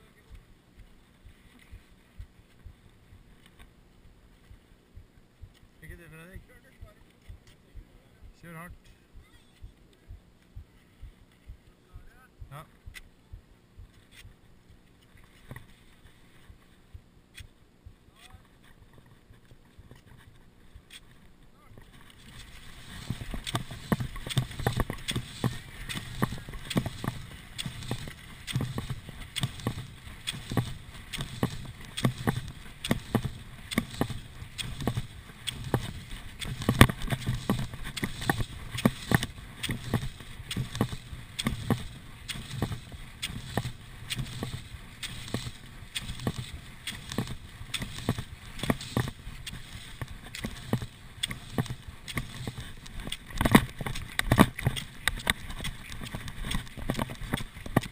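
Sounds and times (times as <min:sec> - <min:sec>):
ski poles clicking on snow: 0:14.0 - 0:14.4, 0:18.2 - 0:21.2, 0:21.8 - 0:57.9
skis scraping over snow: 0:18.2 - 0:57.9.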